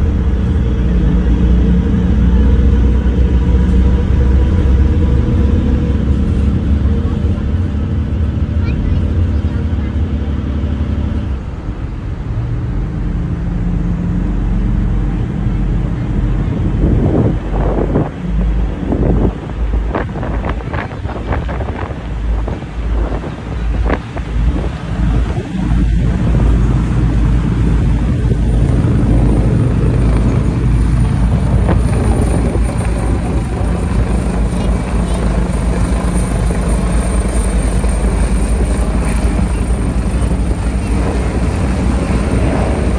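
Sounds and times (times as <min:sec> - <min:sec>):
ferry engines droning: 0:00.0 - 0:42.9
helicopter flying overhead: 0:00.0 - 0:42.9
wind buffeting microphone: 0:00.0 - 0:42.9.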